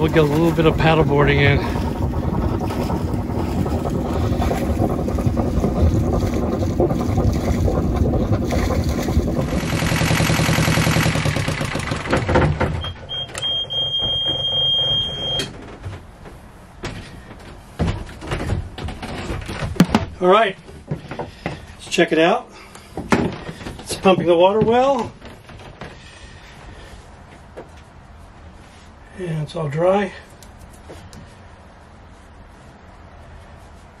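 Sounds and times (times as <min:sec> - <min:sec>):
diesel engine running: 0:00.0 - 0:15.5
high beep: 0:12.8 - 0:15.5.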